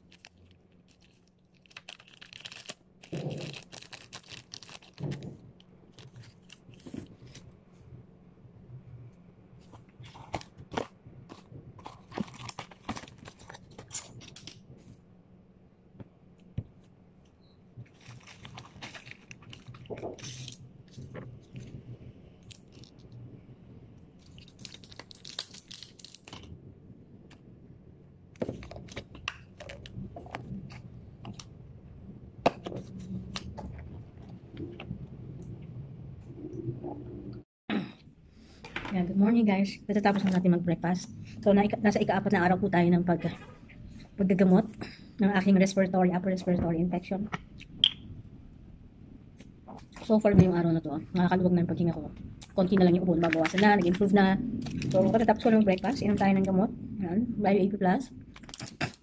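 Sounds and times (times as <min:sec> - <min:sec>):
plastic crinkling: 0:00.0 - 0:07.5, 0:09.7 - 0:14.9, 0:17.8 - 0:21.8, 0:24.2 - 0:26.6, 0:52.4 - 0:56.5.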